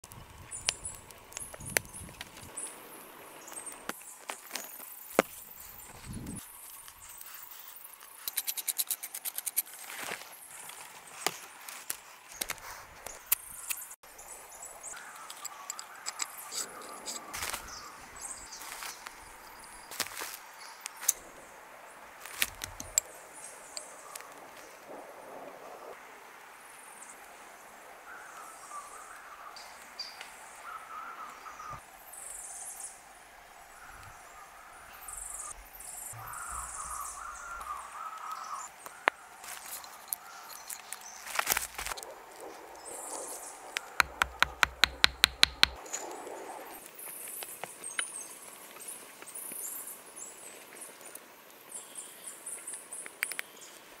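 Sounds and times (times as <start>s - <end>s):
small birds chirping and singing: 0.0s - 9.3s, 10.2s - 21.2s, 33.7s - 41.4s
sharp clicks: 43.8s - 45.8s
sharp knocks: 44.0s - 45.8s.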